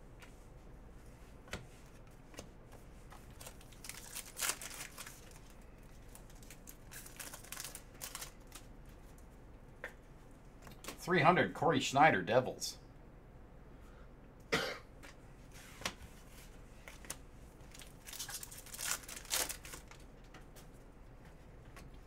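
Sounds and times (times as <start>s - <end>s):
foil pack crinkling: 3.2s - 8.7s, 16.9s - 20.1s.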